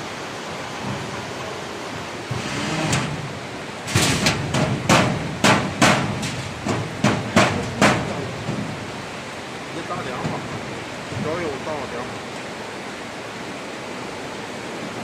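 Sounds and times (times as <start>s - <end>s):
knocks on sheet-steel locker: 3.9s - 8.8s.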